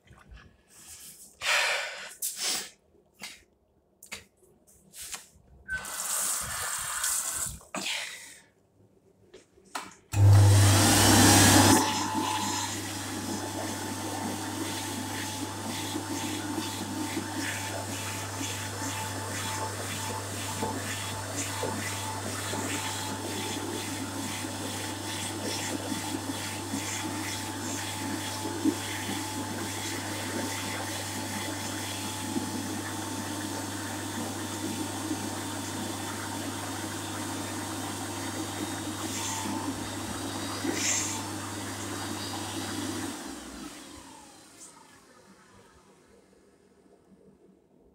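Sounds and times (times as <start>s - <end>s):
electric hand dryer running: 10.1s - 46.4s.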